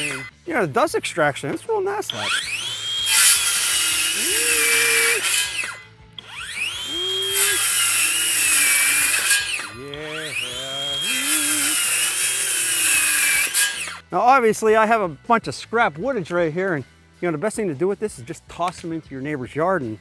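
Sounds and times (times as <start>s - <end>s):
circular saw cutting wood: 0.0s - 0.3s, 2.0s - 14.0s.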